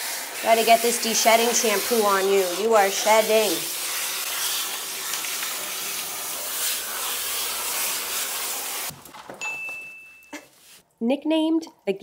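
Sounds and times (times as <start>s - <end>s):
hose water spraying: 0.0s - 9.0s.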